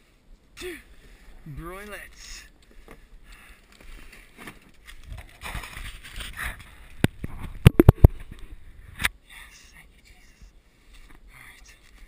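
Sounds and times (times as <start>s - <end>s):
kayak scraping through brush: 3.8s - 6.6s.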